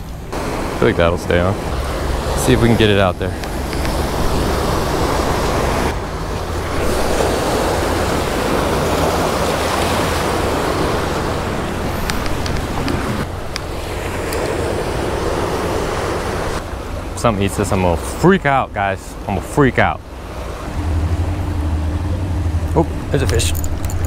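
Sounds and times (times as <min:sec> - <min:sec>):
wind rumbling on microphone: 0:00.0 - 0:17.2
surf breaking over rocks: 0:00.3 - 0:17.1.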